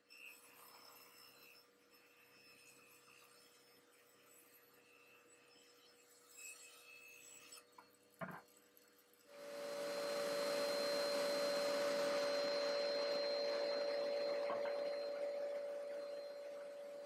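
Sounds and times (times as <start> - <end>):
table saw running: 9.3 - 17.0.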